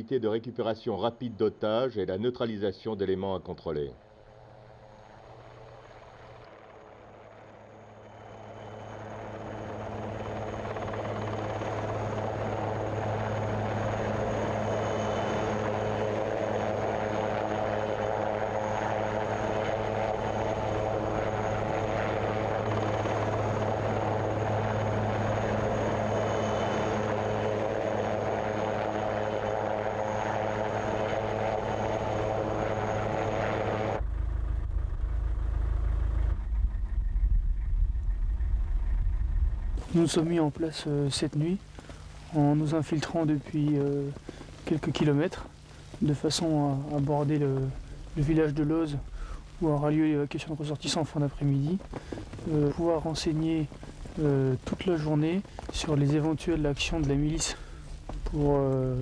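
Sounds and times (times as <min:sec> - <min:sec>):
helicopter rotor and turbine: 0:04.0 - 0:59.0
low rumble: 0:34.0 - 0:40.0.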